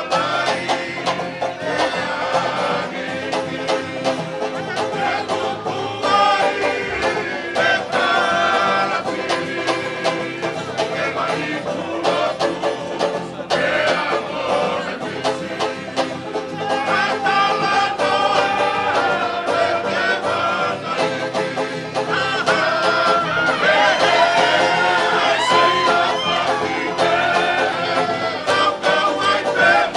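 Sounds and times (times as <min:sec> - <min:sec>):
banjo and guitars strummed: 0:00.0 - 0:29.9
men singing: 0:00.0 - 0:29.9.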